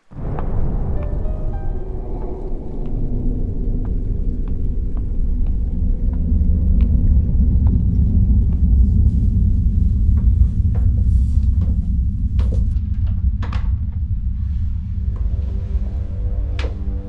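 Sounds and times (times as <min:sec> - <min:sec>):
low rumbling drone: 0:00.0 - 0:17.0.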